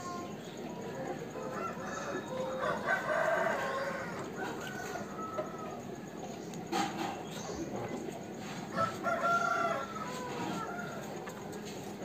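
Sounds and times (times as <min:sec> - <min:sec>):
rooster crowing: 0:01.3 - 0:06.1, 0:08.6 - 0:11.4.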